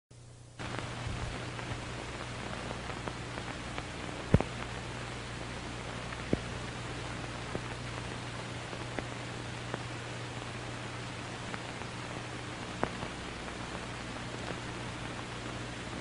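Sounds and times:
film hiss: 0.2 - 16.0
clicks and pops: 0.6 - 4.7, 6.0 - 6.5, 8.7 - 9.9.

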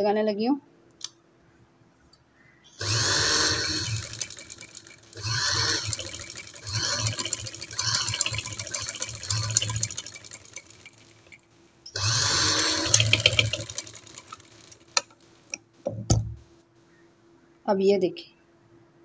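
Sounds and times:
sewing machine needle clatter: 2.8 - 11.4, 12.0 - 15.2.

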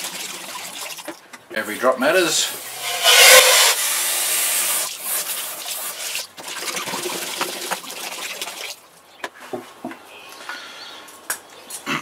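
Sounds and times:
water splashing into bucket: 0.0 - 1.2, 4.8 - 8.8
water spraying from hose nozzle: 2.4 - 8.8.

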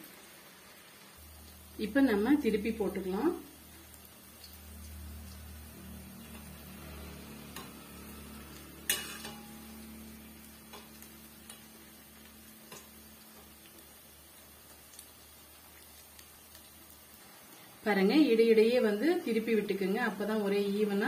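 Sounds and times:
food deep-frying in oil: 0.0 - 21.0
metal utensil clinking on pan: 8.8 - 9.7.

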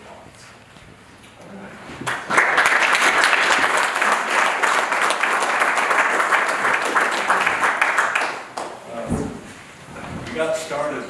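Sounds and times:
audience applause: 2.0 - 8.8.

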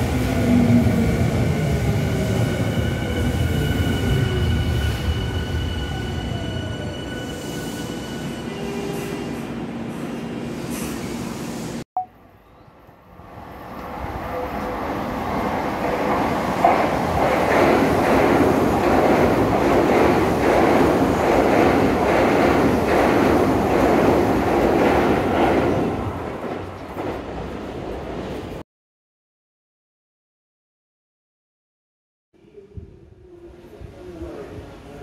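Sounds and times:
train wheels clattering over rails: 15.8 - 27.6.

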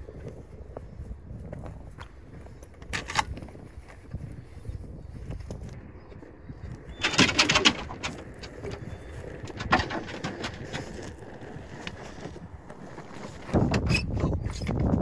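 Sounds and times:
gear clicking and knocking: 7.0 - 11.2.

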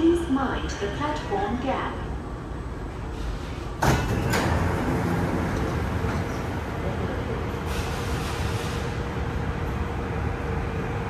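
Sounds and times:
train running rumble: 0.0 - 11.0
train clunks: 3.1 - 9.9.

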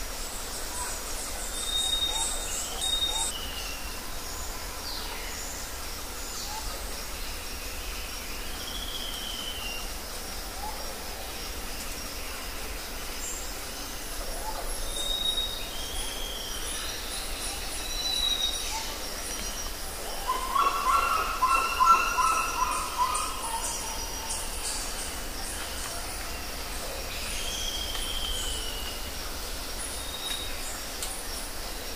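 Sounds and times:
steady background hiss: 0.0 - 31.9
birds chirping and calling: 14.7 - 26.1.

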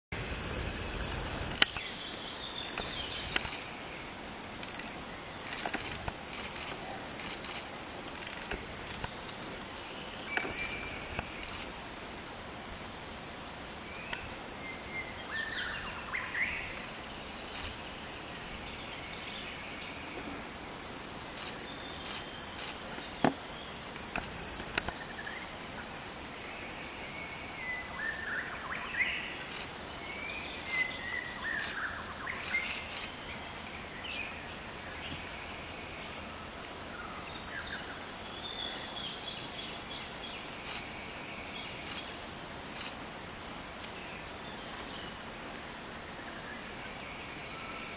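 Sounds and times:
high-pitched insect drone: 0.2 - 9.6, 10.3 - 14.1
sharp clicks: 2.8 - 3.6.

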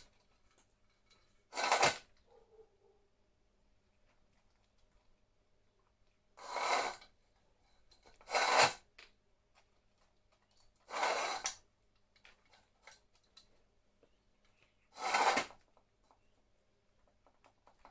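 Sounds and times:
bowl scraping across tile floor: 1.1 - 2.1, 6.4 - 8.9, 10.8 - 11.6, 14.9 - 15.6.

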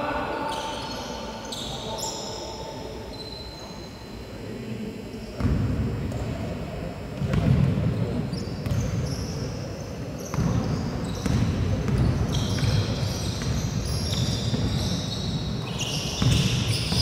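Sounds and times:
sneakers squeaking on floor: 0.4 - 4.1, 7.2 - 17.0
basketball bouncing on wooden court: 8.6 - 9.1, 10.2 - 14.9, 16.2 - 17.0.

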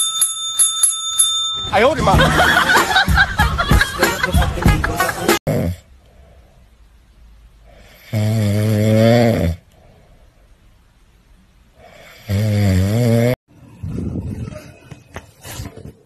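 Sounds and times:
dog snoring: 7.7 - 9.6, 11.8 - 13.4.

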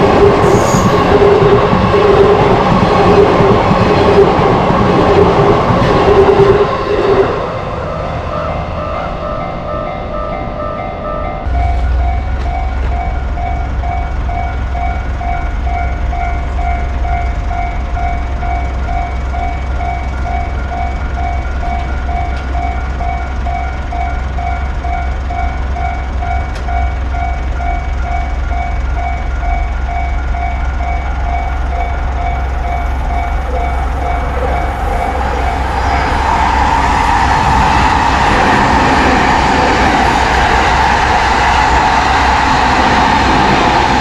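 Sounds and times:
level crossing warning bell: 7.4 - 36.3
low steady rumble: 11.5 - 16.8.

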